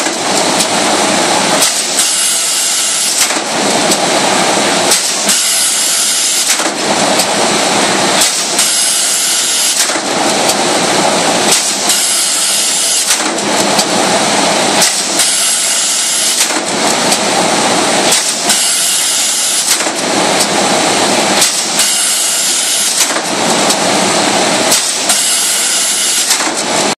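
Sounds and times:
sheet-feeding machine hissing: 0.0 - 26.9
machine clicks: 3.0 - 4.1, 6.4 - 7.4, 9.6 - 10.6, 11.5 - 12.0, 12.9 - 14.0, 14.8 - 17.3, 18.0 - 18.6, 19.6 - 20.6, 22.8 - 23.9, 24.7 - 25.3, 26.0 - 26.9.

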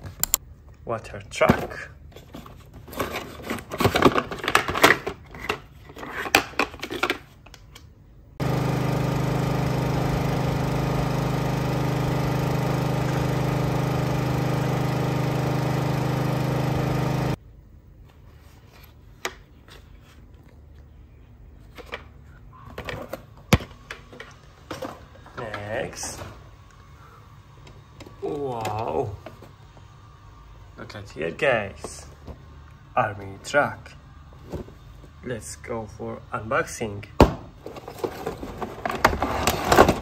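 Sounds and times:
truck engine running: 8.4 - 17.4.

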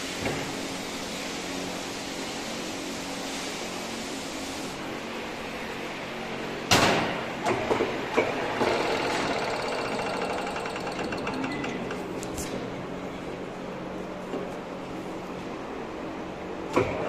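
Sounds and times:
lathe mechanism rattling: 8.6 - 12.1.

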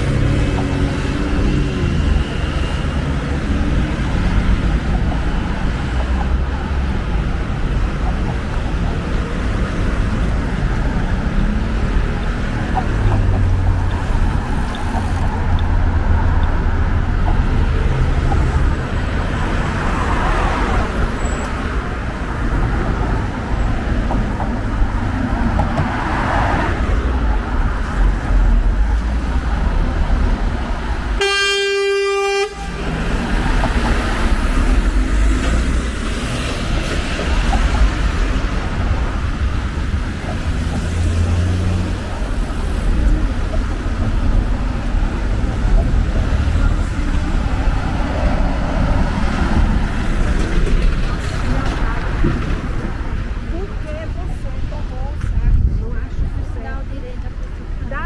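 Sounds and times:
city street traffic: 0.0 - 58.0
vehicle horn toot: 31.2 - 32.9.

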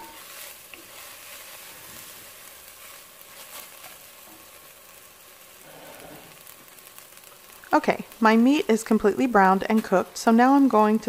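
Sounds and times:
wooden spatula scraping: 0.0 - 4.7
meat sizzling in a pot: 0.0 - 11.0.

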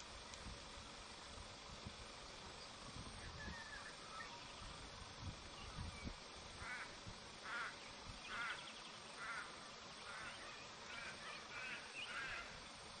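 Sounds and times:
faint steady hiss: 0.0 - 13.0
bird calling: 3.2 - 4.7, 6.6 - 12.6.

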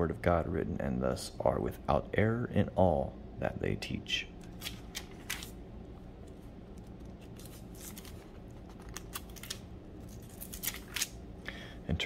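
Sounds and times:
faint low hum: 0.0 - 12.0
pages turning: 4.4 - 5.6, 6.3 - 11.2.

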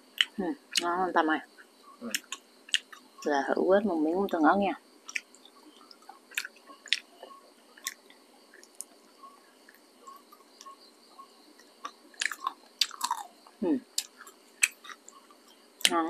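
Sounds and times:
chewing dried meat: 5.1 - 10.8, 11.6 - 16.0.

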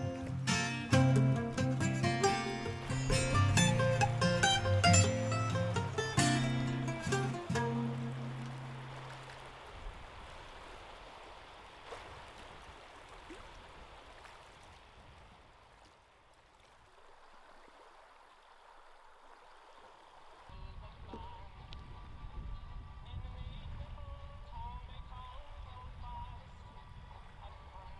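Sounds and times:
small waves lapping on gravel: 2.3 - 21.6.

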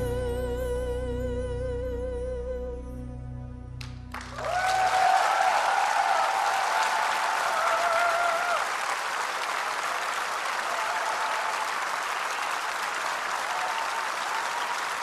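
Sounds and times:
audience applause: 4.1 - 15.0
audience cheering: 4.1 - 15.0.

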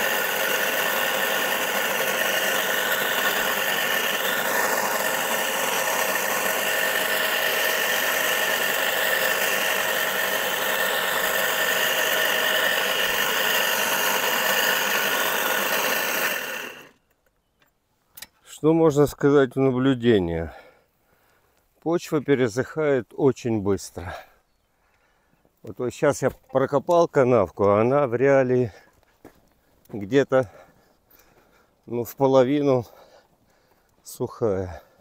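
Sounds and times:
electric motor whining under load: 0.0 - 17.0
cutters digging soil: 0.0 - 17.1.

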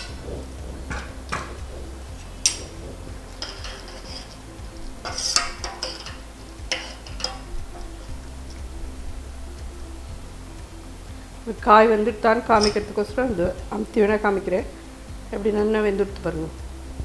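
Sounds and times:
soft background music: 0.0 - 17.0
metal spoon clinking in a pot: 5.0 - 7.9, 12.6 - 12.9.

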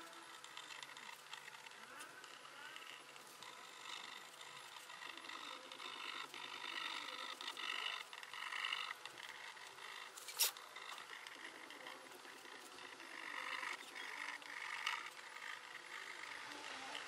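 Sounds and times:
tool scratching papier-mache: 10.0 - 10.8.

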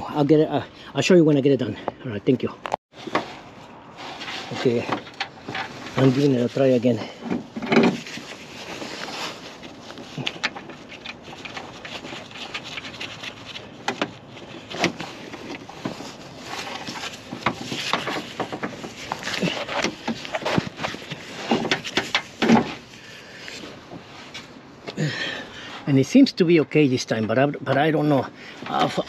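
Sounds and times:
metallic clicks knocks and scrapes: 16.7 - 22.9.

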